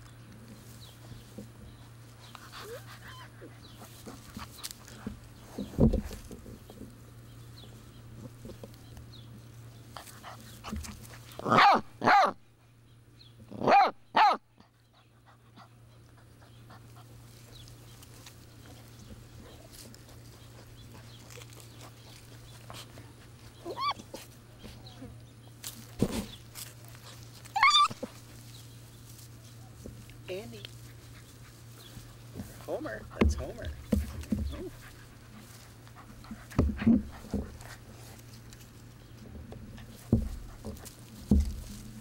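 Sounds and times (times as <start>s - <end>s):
puppies yipping: 2.2s - 4.8s, 15.8s - 25.0s, 26.8s - 28.7s.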